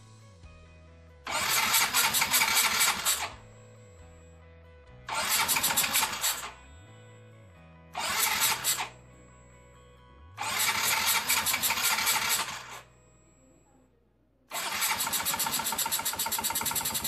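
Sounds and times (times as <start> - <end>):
faint music: 0.0 - 17.0
scooter engine cranking: 1.3 - 3.4, 5.1 - 6.5, 8.0 - 8.9, 10.4 - 12.8, 14.5 - 17.0.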